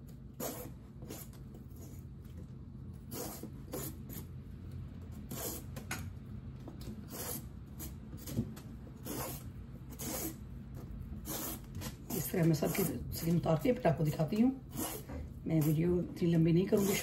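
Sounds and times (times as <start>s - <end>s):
blade scraping gourd skin: 9.0s - 17.0s.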